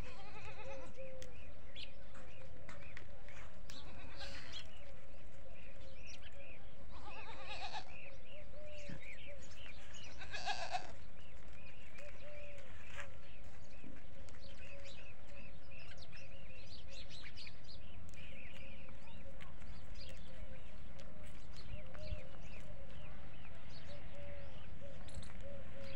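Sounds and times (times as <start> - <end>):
goats bleating: 0.0 - 1.0, 3.7 - 4.8, 6.9 - 8.0, 10.1 - 11.0.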